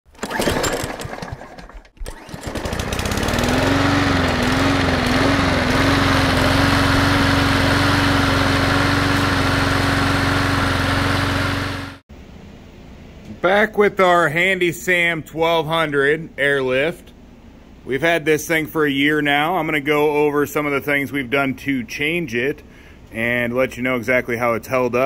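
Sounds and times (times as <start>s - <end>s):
lawn mower engine starting: 0.1s - 12.0s.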